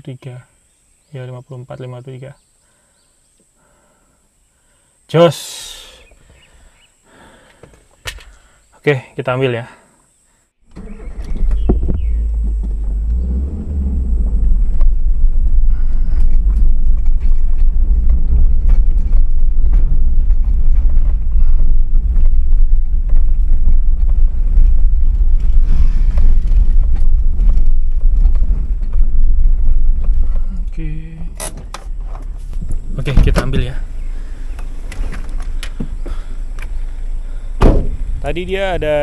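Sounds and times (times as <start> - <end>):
car engine and road rumble: 10.6 - 39.0
car knocks and rattles: 10.7 - 39.0.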